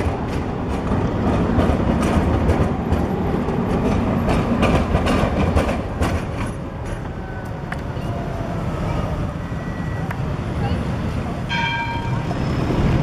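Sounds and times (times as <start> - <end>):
steel wheels clattering on rails: 0.0 - 8.0
tram rumbling: 0.0 - 13.0.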